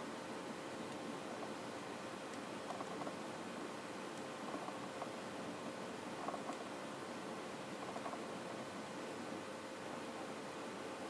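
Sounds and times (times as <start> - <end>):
winding mechanism ticks and rustles: 0.8 - 7.0, 7.7 - 8.7.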